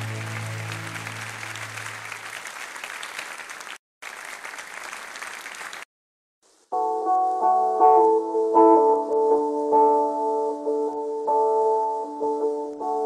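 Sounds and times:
audience applause: 0.0s - 5.9s.

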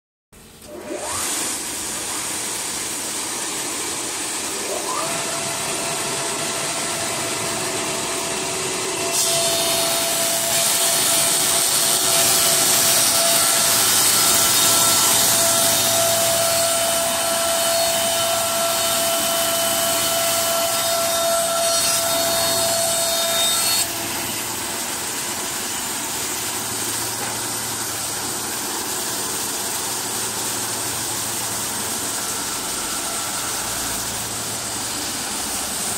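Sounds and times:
planer motors whining: 0.6s - 28.5s
cutter heads planing wood: 0.6s - 35.9s.

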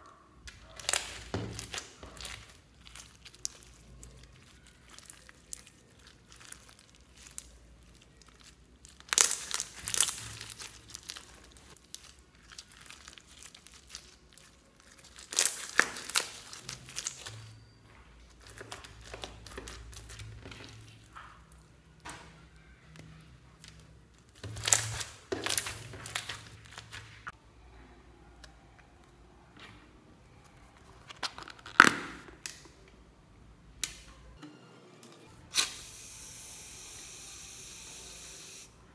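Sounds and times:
beaded slime crackling: 0.5s - 21.7s, 22.6s - 27.4s.

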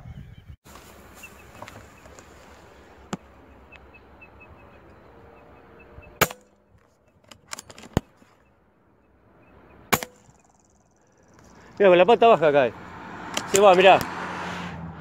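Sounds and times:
air rifle shot: 9.9s - 10.4s.

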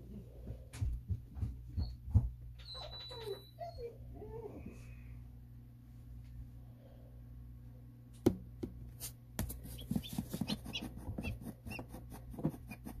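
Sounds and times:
steady low hum: 3.9s - 13.0s
chick peeping: 9.7s - 11.8s.

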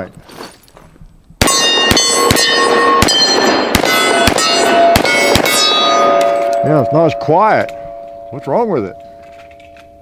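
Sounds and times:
pistol shots: 1.4s - 6.6s
steel targets ringing: 1.4s - 10.0s.

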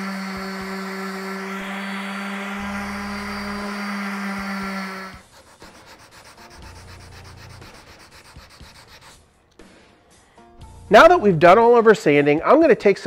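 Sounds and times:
orbital sander running: 0.0s - 9.1s
scratchy rubbing on wood: 0.0s - 9.2s.

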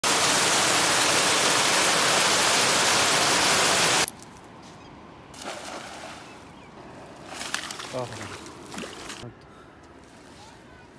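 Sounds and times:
loud steady hiss: 0.0s - 4.1s.

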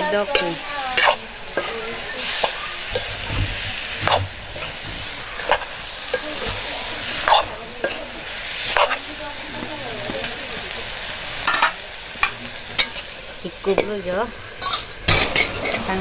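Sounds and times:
vegetables sizzling in a wok: 0.0s - 16.0s
metal ladle scraping a pan: 0.2s - 9.1s, 14.6s - 16.0s.

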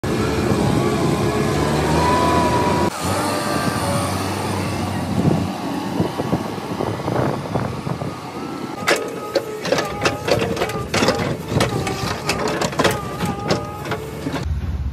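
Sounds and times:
diesel engine running: 0.0s - 14.9s
sharp metal clanks: 8.8s - 14.5s.

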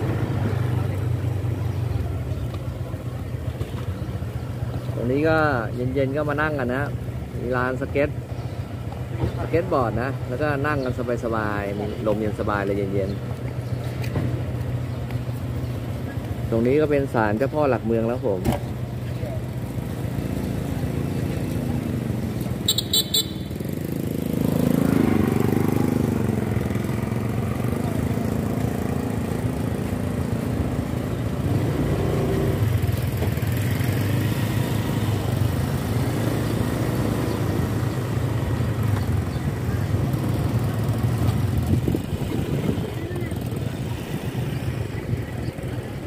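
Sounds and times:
wind and road noise: 0.0s - 46.0s
motorcycle engine running: 18.7s - 46.0s
high-pitched horn toot: 22.7s - 23.6s.

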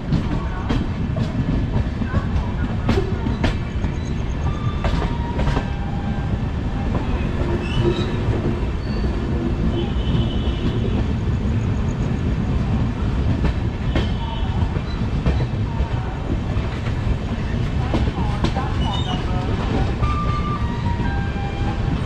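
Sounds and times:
wheels clacking over track joints: 0.0s - 5.8s
train wheels rumbling on rails: 0.0s - 22.0s.

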